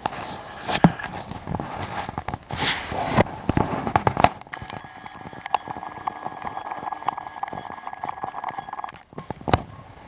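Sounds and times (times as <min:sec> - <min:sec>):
rapid irregular crackling clicks: 0:00.0 - 0:09.6
steady thin tones: 0:02.7 - 0:09.0
sharp clicks: 0:04.3 - 0:09.1.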